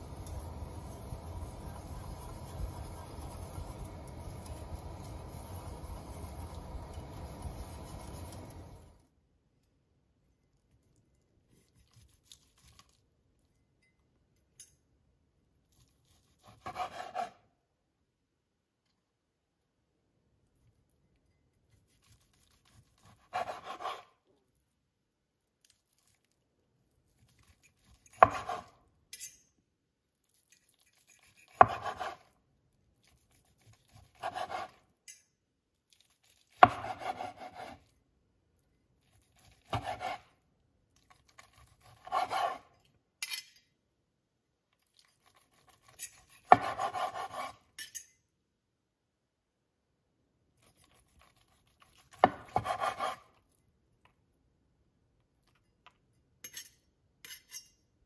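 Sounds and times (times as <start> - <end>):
knife sawing through meat: 16.4 - 17.3, 22.0 - 24.1, 33.5 - 34.8, 41.6 - 42.7, 45.4 - 47.6, 52.5 - 53.3.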